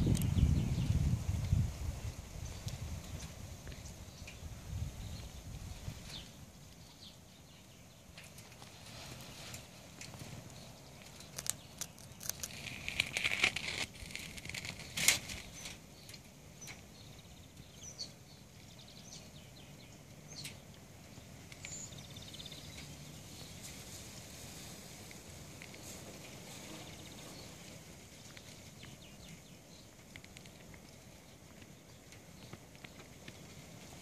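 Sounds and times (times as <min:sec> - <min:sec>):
crackling and rustling: 0:01.0 - 0:34.0
faint bird chirps: 0:14.6 - 0:23.9.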